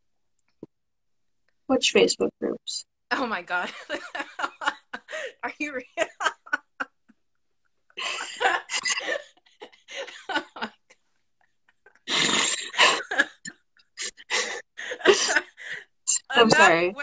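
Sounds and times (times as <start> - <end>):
women laughing: 3.5 - 7.2, 8.0 - 17.0.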